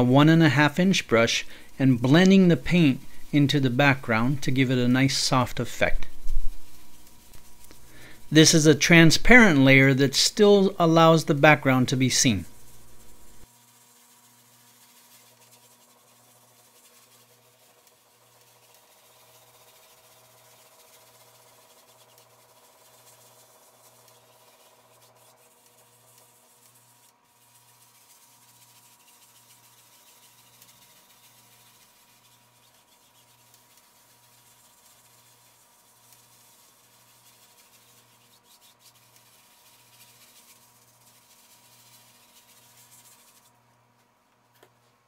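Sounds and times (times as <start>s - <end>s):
brush scrubbing on canvas: 0.0s - 8.6s, 9.3s - 43.6s
low pulsing hum: 2.6s - 8.3s, 12.3s - 13.5s.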